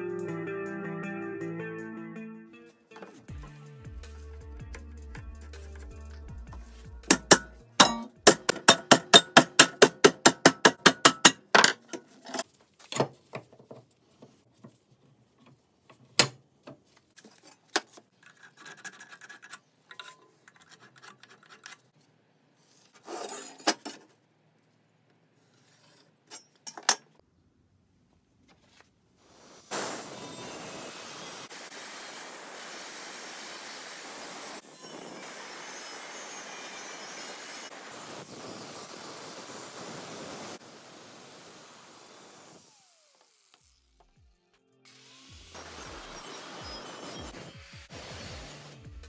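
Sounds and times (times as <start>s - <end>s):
sharp metallic filing strokes: 7.1s - 11.4s
knocks and clinks of steel parts: 7.1s - 12.4s, 19.9s - 20.7s, 26.3s - 27.2s.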